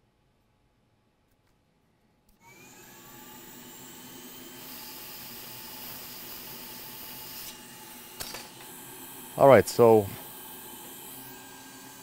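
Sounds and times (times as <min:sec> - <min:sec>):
hot air station fan hiss: 0:03.1 - 0:12.0.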